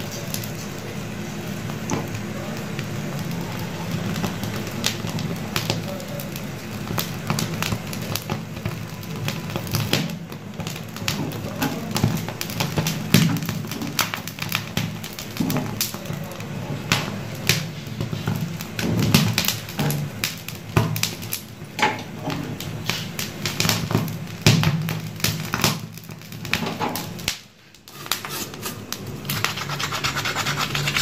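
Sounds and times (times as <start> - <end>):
crackling and sizzling: 0.0 - 31.0.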